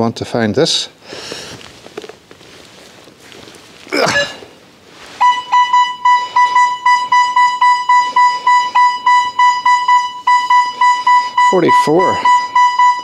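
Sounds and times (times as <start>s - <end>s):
metal detector target tone: 5.2s - 13.0s.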